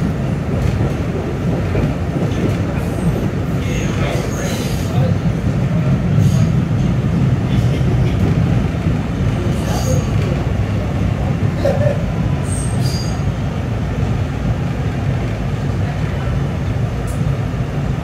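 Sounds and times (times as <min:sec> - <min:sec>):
subway car rumbling: 0:00.0 - 0:18.0
wheel squeals: 0:12.4 - 0:13.3.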